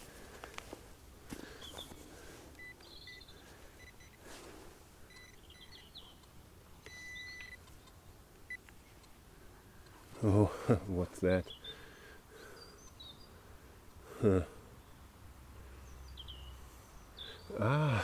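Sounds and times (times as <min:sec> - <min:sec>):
faint high chirps: 0:02.6 - 0:04.2, 0:05.0 - 0:09.0
metal detector beeps: 0:02.6 - 0:04.2, 0:05.1 - 0:05.8, 0:06.8 - 0:07.6
metal detector long tone: 0:06.8 - 0:07.6.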